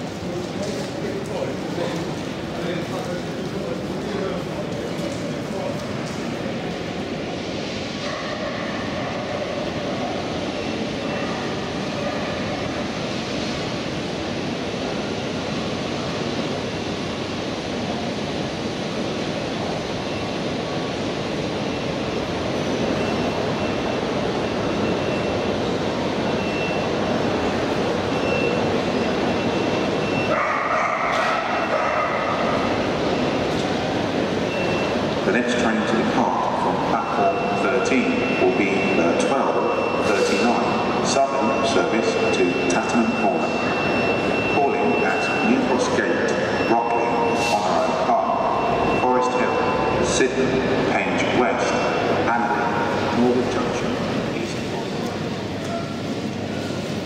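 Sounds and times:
footsteps in echoing hall: 0:00.0 - 0:07.0
crowd chatter: 0:00.0 - 0:20.0, 0:20.7 - 0:57.0
faint high beep: 0:37.0 - 0:50.1.

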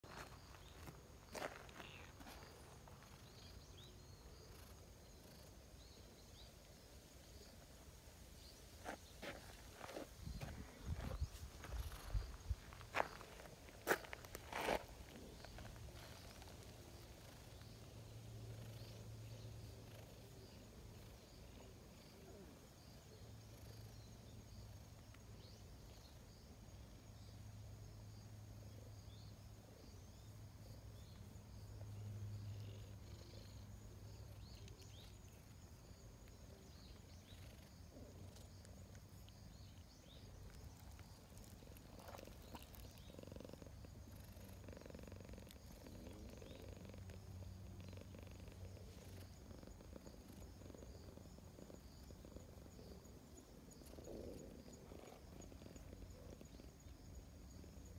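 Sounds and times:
cat purring: 0:15.0 - 0:24.4, 0:31.0 - 0:57.9.

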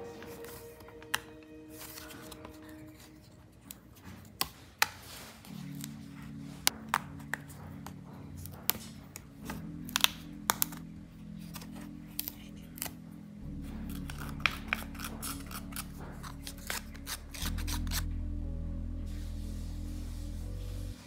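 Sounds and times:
rubbing of sheets: 0:01.7 - 0:06.7
pieces snapping out of sheets: 0:13.9 - 0:18.1.

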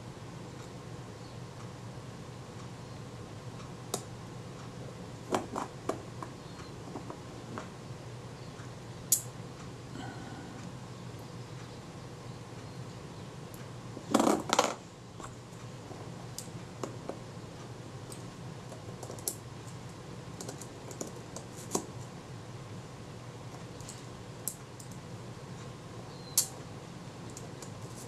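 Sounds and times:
tweezers clicking on metal parts: 0:09.1 - 0:09.3.

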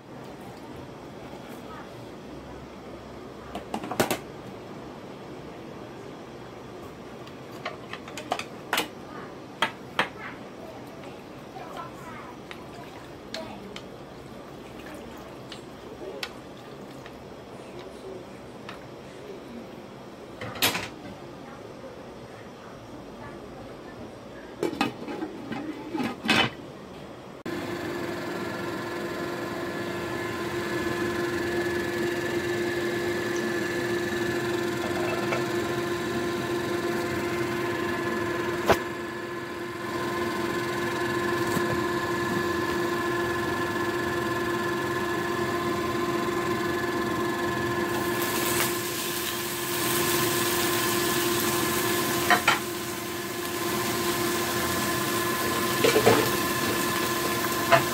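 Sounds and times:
appliance hum with fan whir: 0:00.0 - 0:57.9
sausages sizzling in oil: 0:27.5 - 0:57.9.

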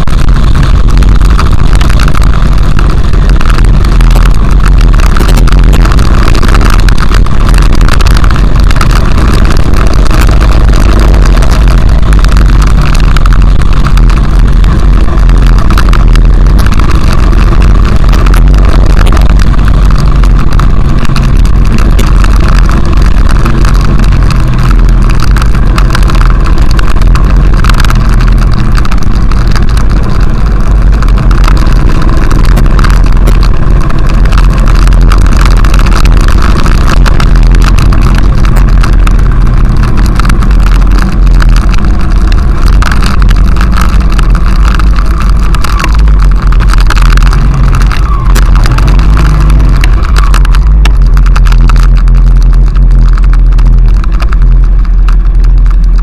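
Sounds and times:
motorcycle engine running: 0:00.0 - 0:56.0
wind rumble on microphone: 0:00.0 - 0:56.0.

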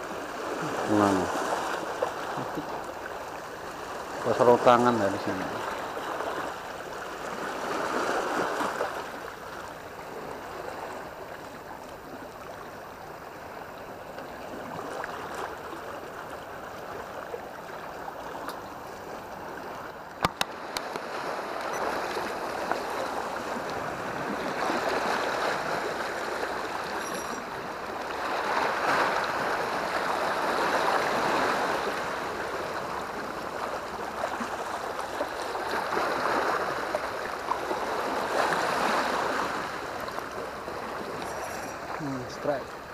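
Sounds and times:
water lapping against seawall: 0:00.0 - 0:42.9
sharp click: 0:20.2 - 0:21.0.

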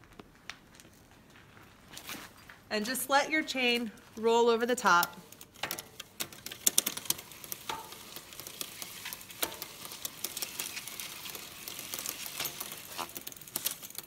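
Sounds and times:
chain clicking: 0:05.0 - 0:14.0
bicycle chain rubbing on cloth: 0:06.3 - 0:14.0.

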